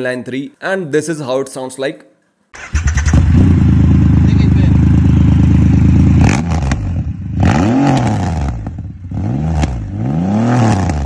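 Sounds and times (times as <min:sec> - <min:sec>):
motorcycle engine revving: 0:02.6 - 0:11.0.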